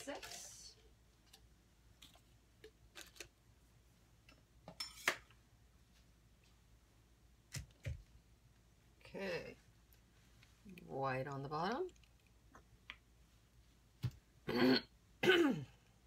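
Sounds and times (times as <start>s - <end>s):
plastic cups clicking and knocking: 0.0s - 3.4s.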